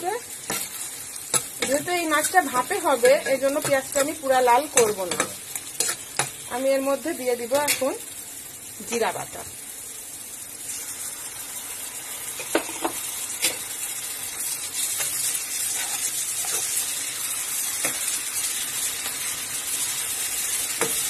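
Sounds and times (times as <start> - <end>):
food sizzling in hot oil: 0.0 - 21.0
spatula scraping a wok: 0.4 - 6.4, 14.4 - 19.3.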